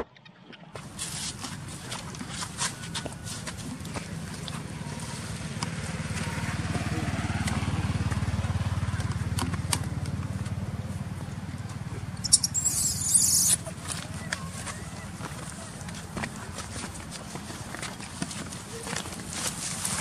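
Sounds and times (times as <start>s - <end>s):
motorcycle engine passing: 4.0s - 13.9s.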